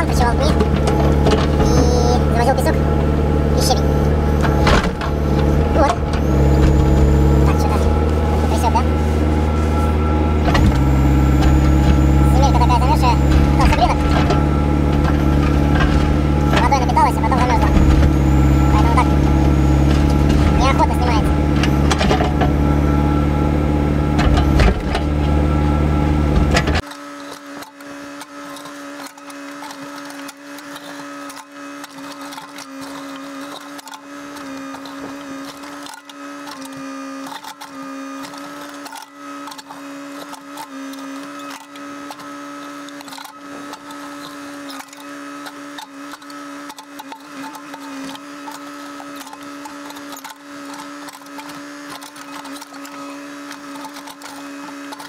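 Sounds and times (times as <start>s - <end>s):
diesel engine running under load: 0.0s - 26.9s
thin machine hum with whine: 0.0s - 55.0s.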